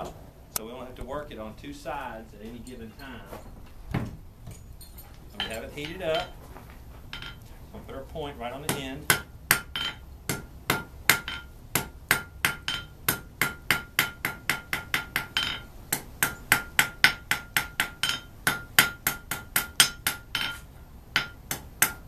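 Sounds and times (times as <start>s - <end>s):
hammer striking ringing anvil: 7.1s - 7.4s, 8.7s - 22.0s.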